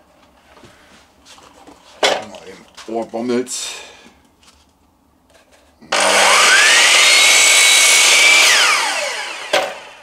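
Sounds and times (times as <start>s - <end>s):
miter saw motor whine: 5.9s - 10.0s.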